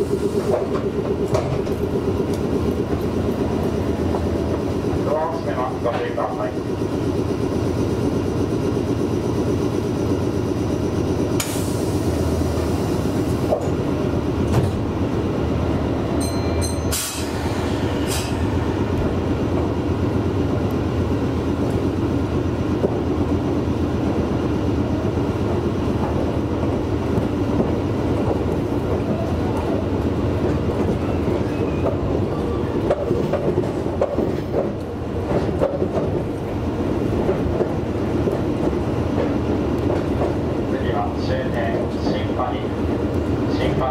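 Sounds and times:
train wheels rumbling on rail: 0:00.0 - 0:43.9.

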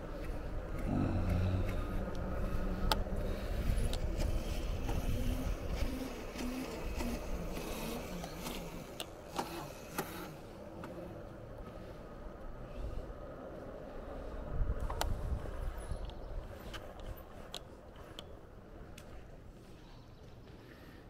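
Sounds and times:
wind and tyre noise: 0:00.0 - 0:21.0
electric motor hum: 0:00.2 - 0:11.2.

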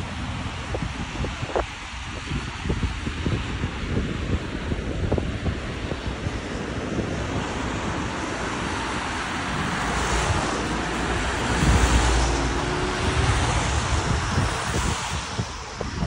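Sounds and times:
road traffic: 0:00.0 - 0:16.0
wind buffeting microphone: 0:00.0 - 0:16.0
vehicle passing close by: 0:07.0 - 0:16.0.

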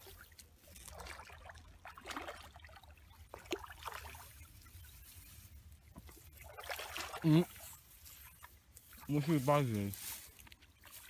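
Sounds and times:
fish splashing in water: 0:00.0 - 0:04.8, 0:05.8 - 0:09.2.

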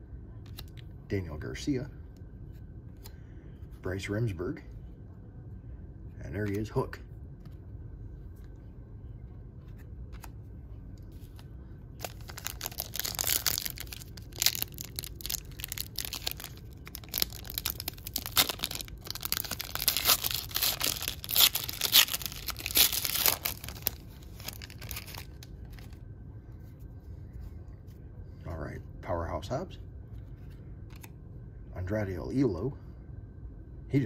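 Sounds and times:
foil wrapper tearing and crinkling: 0:12.0 - 0:25.9.

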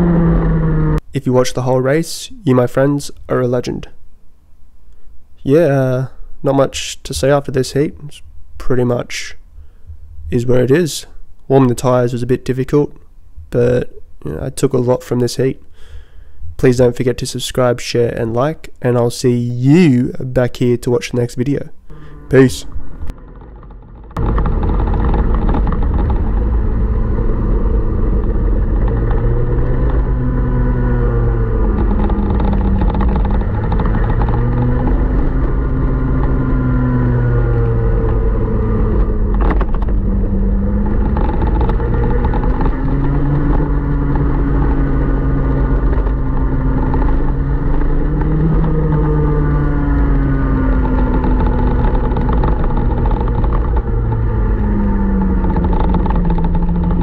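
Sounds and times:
kart engine revving: 0:00.0 - 0:01.1, 0:21.9 - 0:57.0
constant low rumble: 0:00.0 - 0:57.0.

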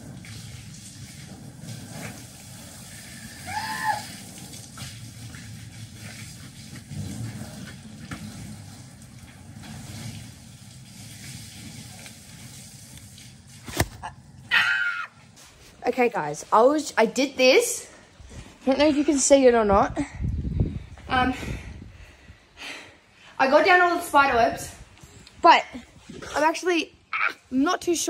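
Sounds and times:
rain: 0:00.0 - 0:13.7
wind: 0:00.0 - 0:28.0.

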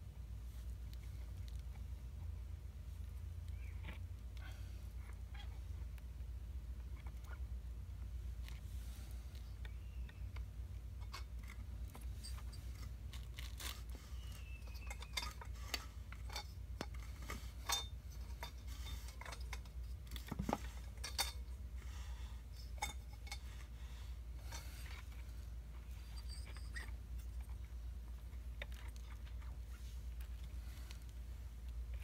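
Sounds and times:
steady low hum: 0:00.0 - 0:32.0
light metallic clicks and scrapes: 0:08.4 - 0:32.0
falling squeak: 0:13.4 - 0:15.4, 0:26.0 - 0:27.0.

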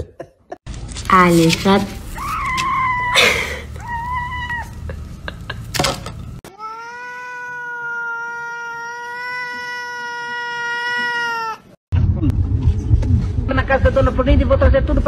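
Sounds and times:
cat meowing: 0:02.2 - 0:03.2, 0:03.8 - 0:04.8, 0:06.5 - 0:11.8.

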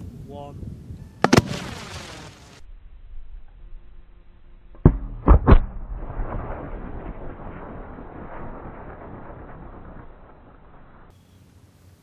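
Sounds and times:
firework mortar bang: 0:01.2 - 0:02.3, 0:04.8 - 0:11.1
slowed deep thumps and rumble: 0:04.6 - 0:11.1.

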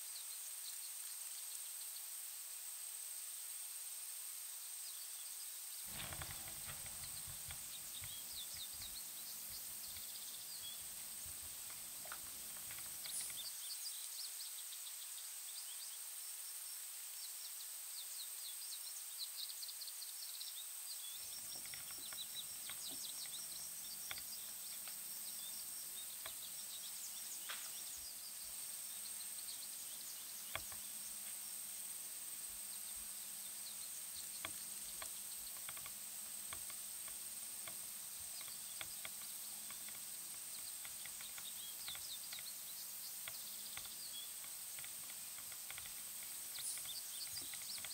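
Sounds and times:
faint high-pitched hiss: 0:00.0 - 0:47.9
small birds chirping: 0:04.8 - 0:47.9
light ticks and rustles: 0:05.9 - 0:13.8, 0:21.0 - 0:47.9.

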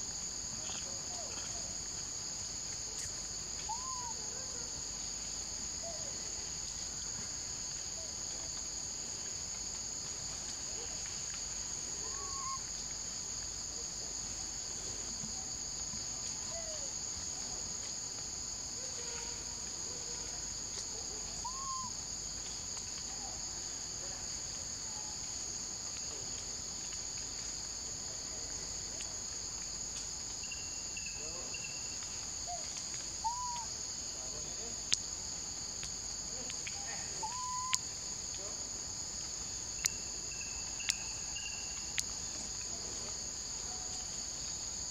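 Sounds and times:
insects droning: 0:00.0 - 0:44.9.

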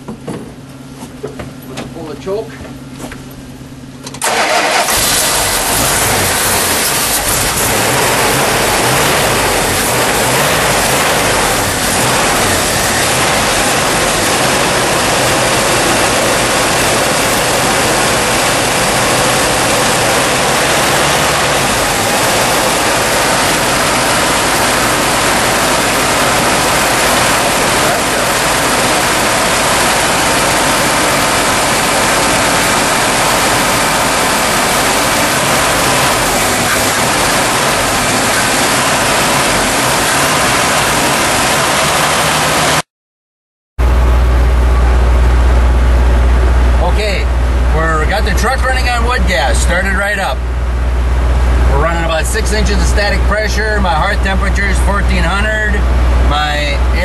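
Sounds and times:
truck engine running: 0:00.0 - 0:42.9, 0:43.8 - 0:57.0
loud even rushing noise: 0:04.3 - 0:42.8.

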